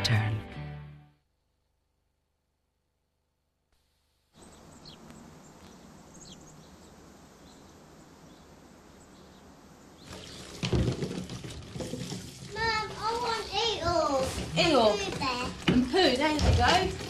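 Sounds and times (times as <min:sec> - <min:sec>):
outdoor ambience: 0:01.2 - 0:17.0
faint bird chirps: 0:04.4 - 0:10.6
water splashing in a bath: 0:10.0 - 0:17.0.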